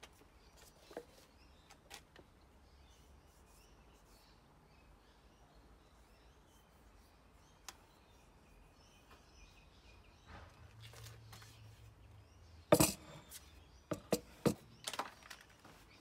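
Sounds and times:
axe knocking on wooden workbench: 12.7s - 13.1s, 13.9s - 14.6s.

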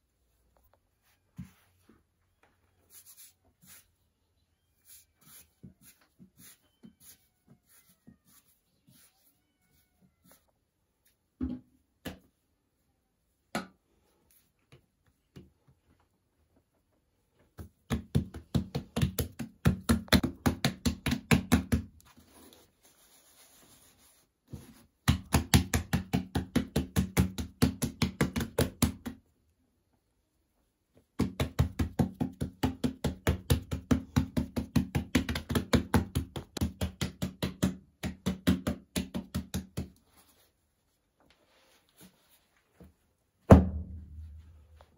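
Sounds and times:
hands patting dough on board: 17.4s - 22.1s, 24.5s - 29.3s, 31.0s - 40.3s.

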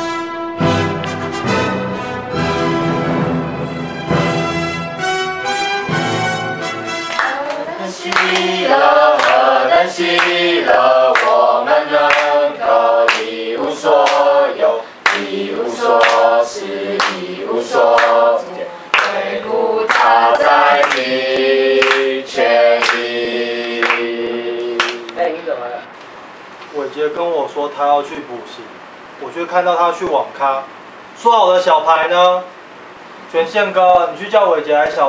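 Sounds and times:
hands clapping: 7.0s - 12.4s, 13.0s - 14.3s, 15.0s - 16.4s, 17.0s - 17.3s, 17.9s - 18.2s, 18.9s - 19.2s, 19.9s - 25.3s
group singing a hymn: 7.2s - 25.9s.

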